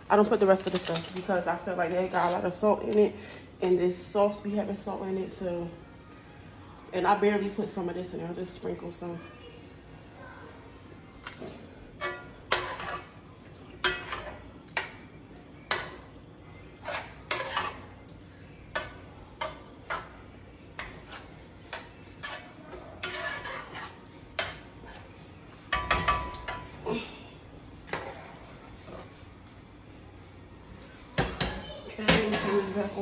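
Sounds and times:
spoon scraping a pan: 0:00.2 - 0:04.0, 0:11.1 - 0:26.8, 0:27.9 - 0:29.3.

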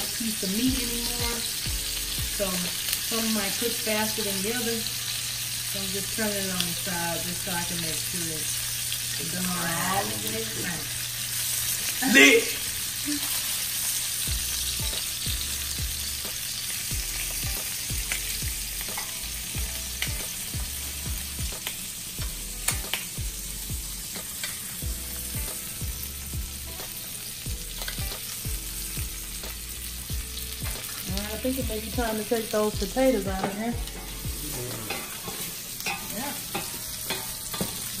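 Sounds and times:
meat sizzling in a frying pan: 0:00.0 - 0:38.0.

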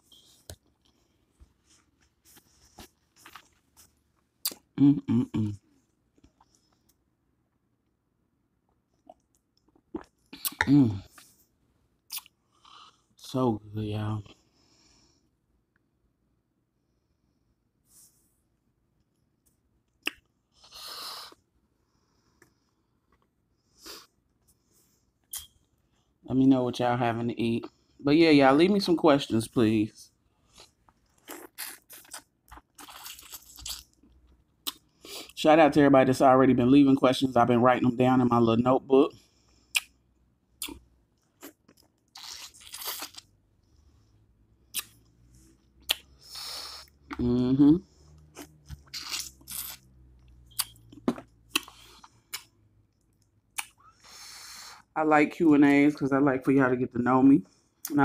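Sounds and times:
person chewing food: 0:00.0 - 0:04.7, 0:08.6 - 0:11.4, 0:30.4 - 0:35.4, 0:40.6 - 0:43.9, 0:44.6 - 0:47.3, 0:48.1 - 0:54.2.

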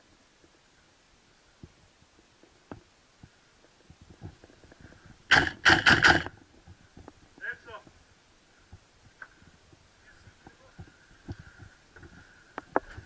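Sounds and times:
airsoft rifle shots: 0:05.3 - 0:06.3.

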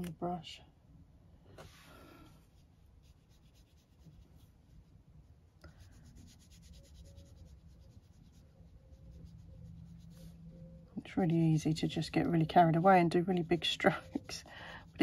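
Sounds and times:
brush dabbing on paper: 0:02.4 - 0:05.0, 0:05.7 - 0:15.0.

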